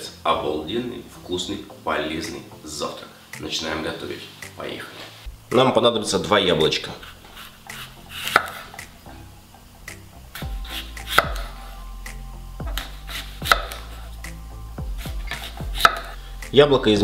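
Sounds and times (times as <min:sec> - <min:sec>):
background music: 0:00.0 - 0:17.0
knife cutting apple: 0:07.0 - 0:09.0, 0:09.9 - 0:16.2.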